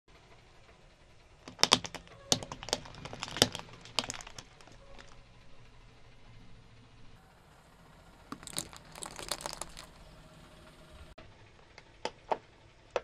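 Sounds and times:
plastic clips cracking under tyre: 0:01.4 - 0:05.3, 0:08.3 - 0:10.0.

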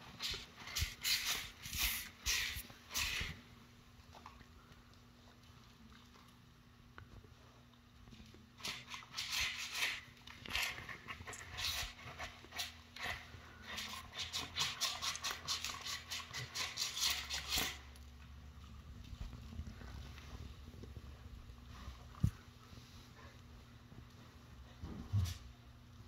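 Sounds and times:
dog licking plastic tray: 0:08.5 - 0:17.8.

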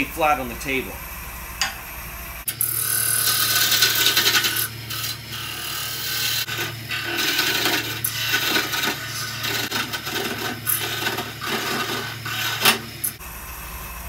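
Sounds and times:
lathe motor humming: 0:02.6 - 0:13.2.

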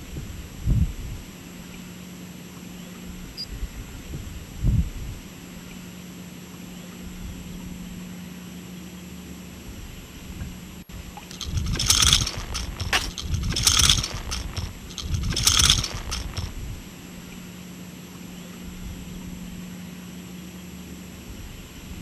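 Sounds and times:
steady low hum: 0:11.2 - 0:16.8
fishing lure and hooks rattling: 0:11.3 - 0:16.6.

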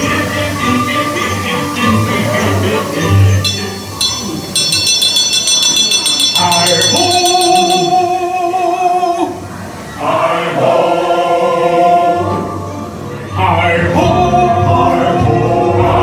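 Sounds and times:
male voices singing in chorus: 0:00.0 - 0:03.6, 0:10.0 - 0:12.6, 0:13.2 - 0:16.0
bright bell-like chimes: 0:03.4 - 0:08.2.

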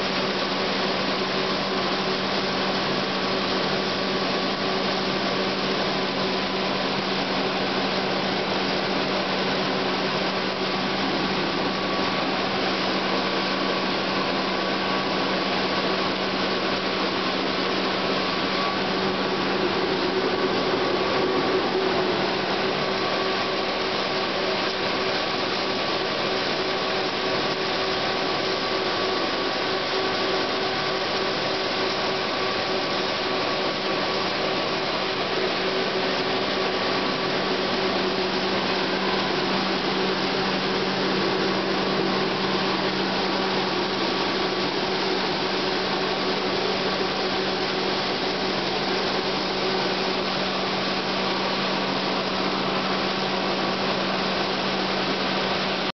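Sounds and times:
steady machine hum: 0:00.0 - 0:56.0
machinery whirring rush: 0:17.0 - 0:26.4.

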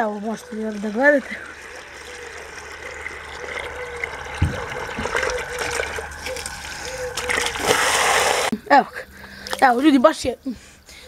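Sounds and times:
hose water splashing into basin: 0:00.0 - 0:08.5.

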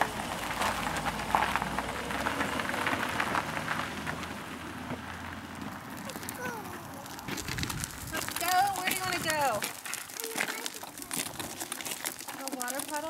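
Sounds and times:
car engine hum: 0:00.0 - 0:08.2.

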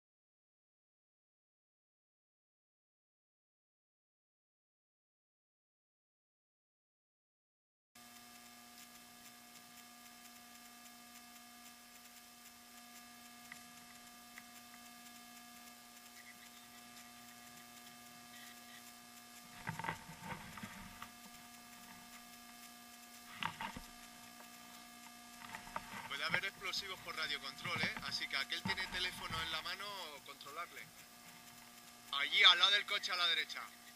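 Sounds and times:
electrical hum: 0:08.0 - 0:33.9
short bursts of noise: 0:08.0 - 0:33.9.

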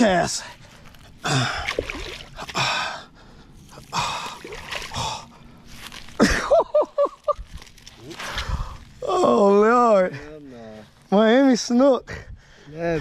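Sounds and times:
man breathing hard: 0:02.5 - 0:05.7.

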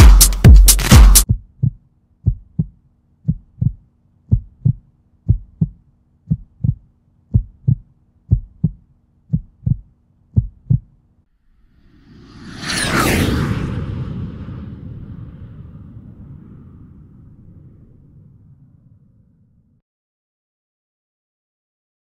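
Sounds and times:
heartbeat-like low thumps: 0:00.0 - 0:11.0
faint steady hum: 0:01.6 - 0:11.3.

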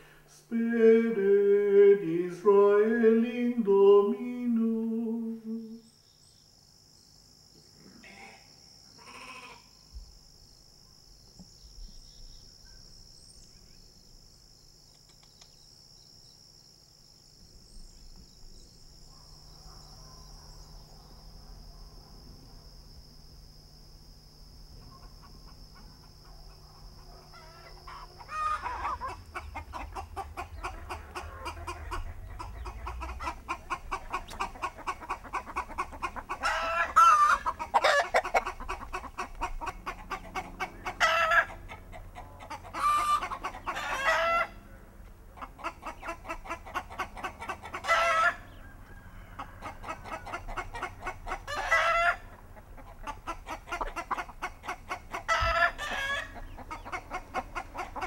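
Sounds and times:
loud chicken calls: 0:08.0 - 0:09.8, 0:24.8 - 0:58.0
hens clucking: 0:24.8 - 0:58.0.

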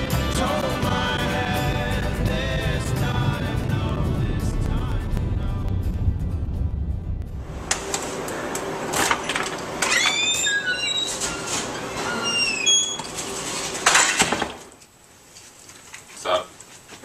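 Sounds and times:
door hinges squeaking: 0:09.8 - 0:13.4.

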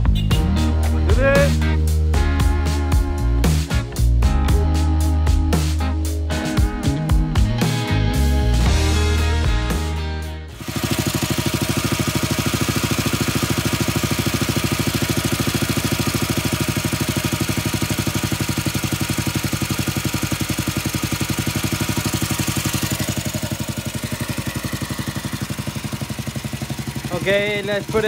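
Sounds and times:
motorcycle engine idling: 0:08.6 - 0:28.0.

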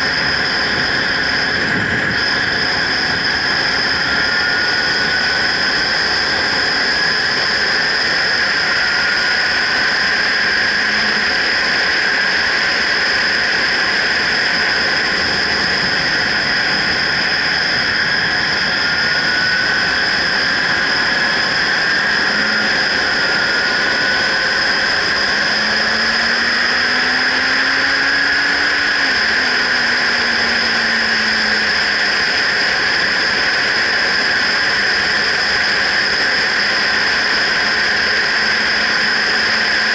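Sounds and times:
motorcycle engine: 0:00.0 - 0:13.0
wind rushing over microphone: 0:00.0 - 0:39.9.

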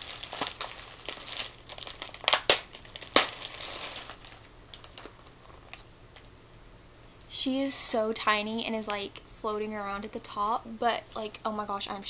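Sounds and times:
plastic bag crinkling: 0:00.0 - 0:06.3.

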